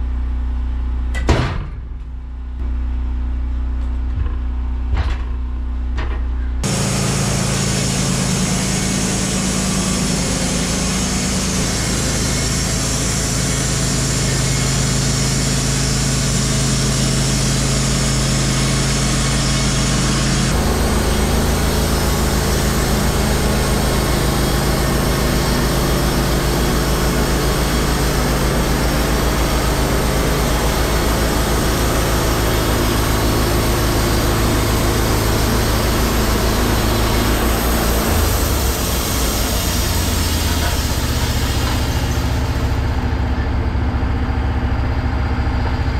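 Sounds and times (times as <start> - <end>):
bandsaw mill engine running: 6.5 - 45.9.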